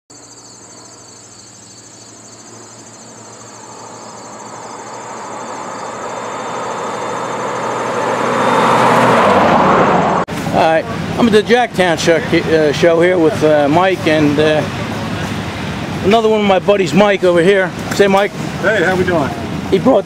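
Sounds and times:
crickets chirping: 0:00.1 - 0:09.5
car engine and tyres approaching: 0:00.2 - 0:20.0.

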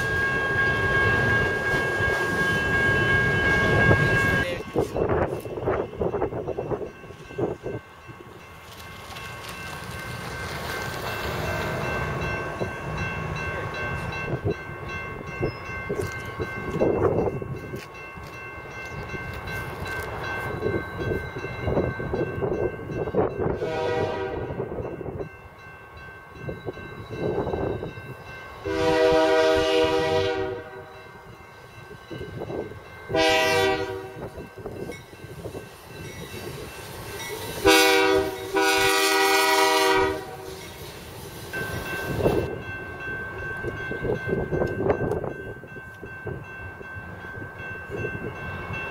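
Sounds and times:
diesel locomotive rumbling: 0:00.0 - 0:48.9
train air horn blasts: 0:23.5 - 0:24.6, 0:28.6 - 0:30.9, 0:33.1 - 0:34.4, 0:37.6 - 0:40.6.

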